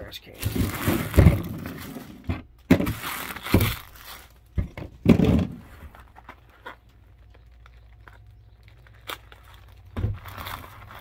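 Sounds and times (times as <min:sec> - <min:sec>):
foil wrappers rustling: 0:00.2 - 0:04.6, 0:05.6 - 0:11.0
knocks and thumps: 0:00.4 - 0:03.9, 0:04.6 - 0:05.8.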